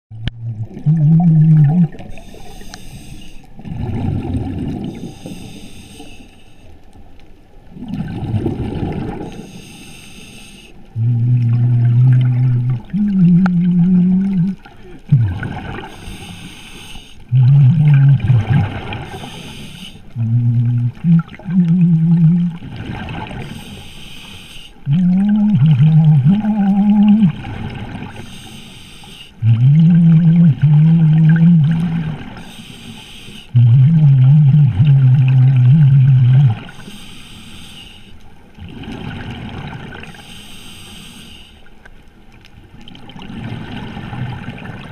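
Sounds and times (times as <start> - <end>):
exhaled bubbles underwater: 0.1 - 5.6, 7.6 - 9.6, 10.9 - 16.5, 17.3 - 23.8, 24.8 - 28.4, 29.4 - 32.6, 33.5 - 37.0, 38.5 - 40.3, 42.4 - 44.9
regulator breathing hiss: 2.1 - 3.5, 5.1 - 6.8, 9.4 - 10.8, 15.9 - 17.3, 19.1 - 20.1, 23.5 - 24.8, 28.2 - 29.4, 32.4 - 33.6, 36.7 - 38.2, 40.2 - 41.7
loud low tones: 33.6 - 36.6.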